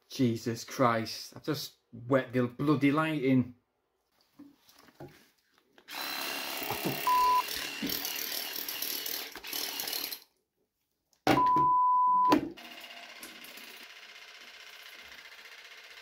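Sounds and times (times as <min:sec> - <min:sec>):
bleep tone: 0:07.0 - 0:07.4, 0:11.4 - 0:12.4.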